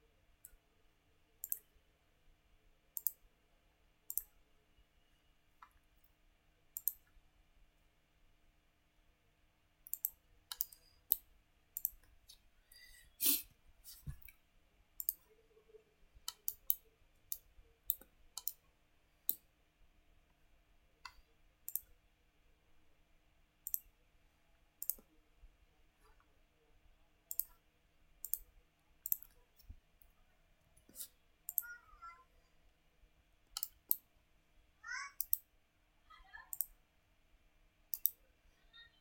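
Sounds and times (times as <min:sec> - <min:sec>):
computer mouse clicking: 0:01.4 - 0:01.7, 0:03.0 - 0:03.2, 0:04.1 - 0:04.3, 0:06.7 - 0:07.1, 0:09.8 - 0:12.1, 0:15.0 - 0:15.3, 0:16.2 - 0:18.6, 0:19.2 - 0:19.5, 0:21.0 - 0:21.9, 0:23.6 - 0:23.9, 0:24.8 - 0:25.1, 0:27.3 - 0:27.6, 0:28.2 - 0:29.4, 0:30.9 - 0:31.7, 0:33.5 - 0:34.1, 0:35.2 - 0:35.5, 0:36.5 - 0:36.8, 0:37.9 - 0:38.2.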